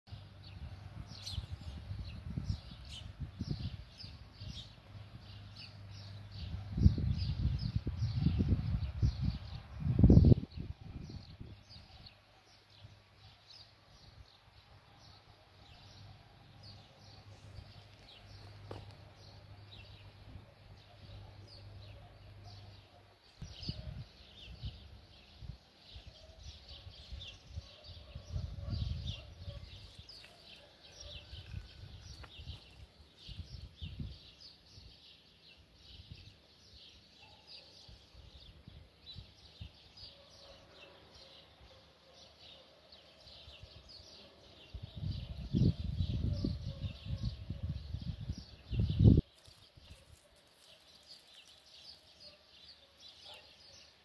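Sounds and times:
small birds chirping: 0.1s - 54.0s.

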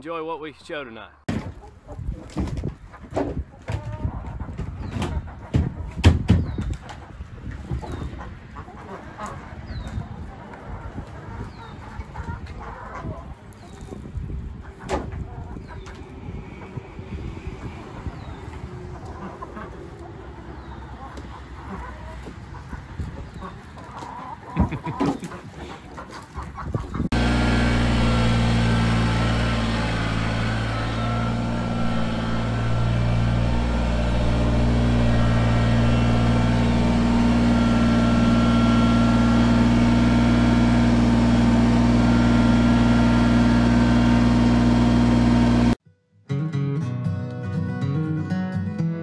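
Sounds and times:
chickens clucking: 0.4s - 44.1s
tractor diesel engine running: 27.0s - 45.8s
acoustic guitar music: 46.2s - 49.0s.

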